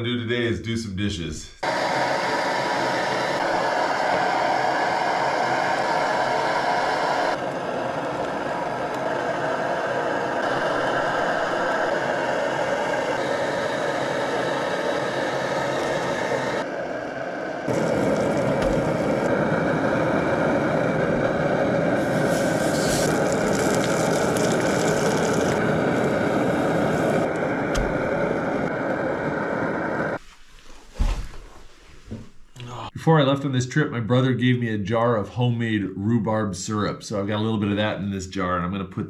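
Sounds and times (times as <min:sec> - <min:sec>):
gas stove burner hissing: 0:01.6 - 0:30.2.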